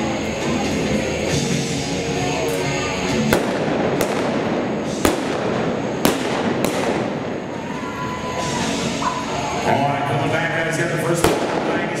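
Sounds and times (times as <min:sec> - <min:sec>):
echoing gunshots: 0:03.3 - 0:07.6, 0:11.2 - 0:12.0.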